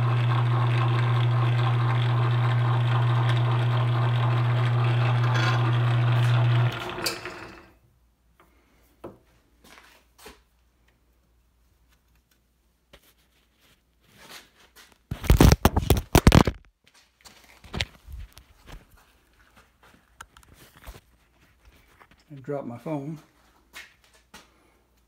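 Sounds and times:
lathe motor hum spinning down: 0.0s - 7.7s
phone dropped knocks and rattling: 15.2s - 16.6s.

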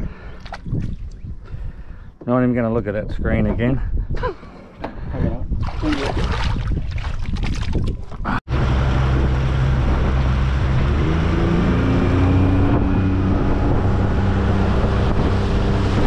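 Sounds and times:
wind buffeting microphone: 0.0s - 16.0s
water rushing past hull: 5.6s - 16.0s
outboard motor running: 8.5s - 16.0s.

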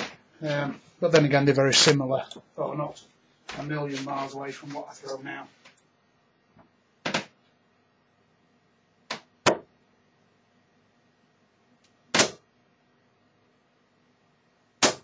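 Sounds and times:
darts thudding into dartboard: 7.0s - 7.4s, 9.1s - 9.7s, 12.1s - 12.4s, 14.8s - 15.0s.

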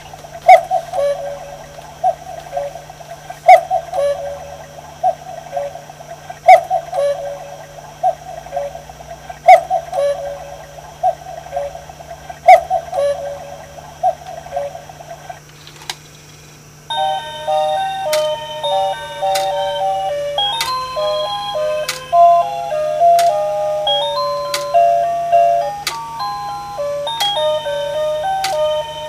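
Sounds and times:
two-note cuckoo whistles: 0.5s - 2.8s, 3.4s - 5.8s, 6.5s - 8.8s, 9.5s - 11.8s, 12.5s - 14.9s, 16.9s - 29.0s
clock striking: 16.9s - 29.0s
music box tune: 16.9s - 29.0s
clock click: 17.5s - 29.0s.

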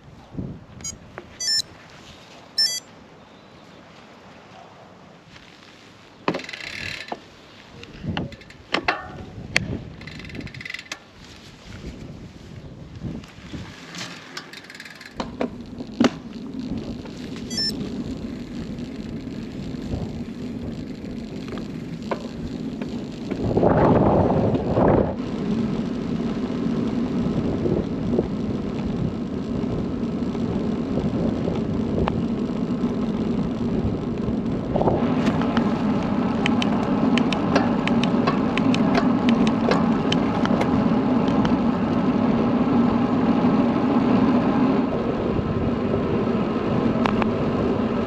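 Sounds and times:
bicycle tyre noise on tarmac: 0.0s - 48.0s
bike drivetrain whir: 5.3s - 48.0s
sharp clicks: 35.2s - 41.6s.

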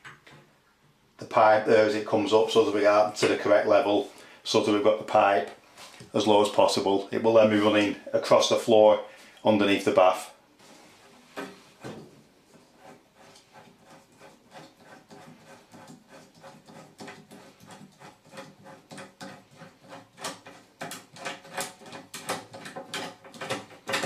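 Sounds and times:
pipe cutter scraping clicks: 14.5s - 24.0s.

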